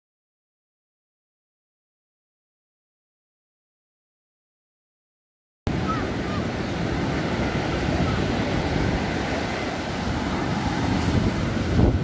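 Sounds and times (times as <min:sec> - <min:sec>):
surf breaking on beach: 0:05.7 - 0:12.0
wind buffeting microphone: 0:05.7 - 0:12.0.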